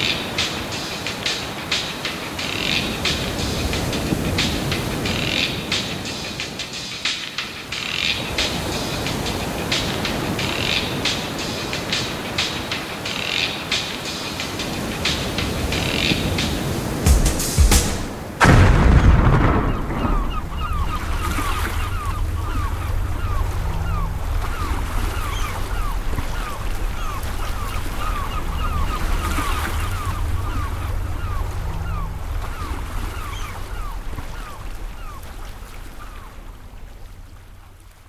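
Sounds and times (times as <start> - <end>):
low rumble: 18.4 - 35.0.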